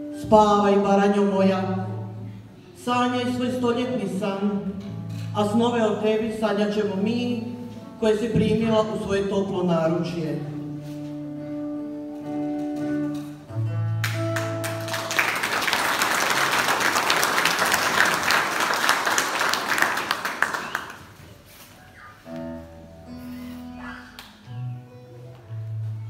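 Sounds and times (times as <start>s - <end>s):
acoustic guitar notes: 0.0s - 15.1s, 21.7s - 26.0s
audience applause: 14.0s - 21.4s.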